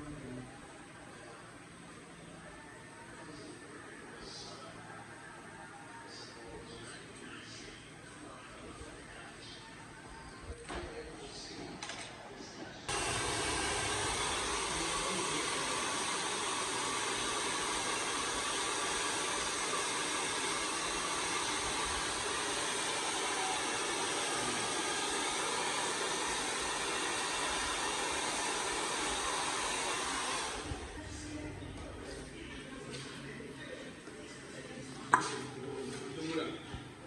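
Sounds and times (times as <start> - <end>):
hair dryer running: 12.9 - 31.5.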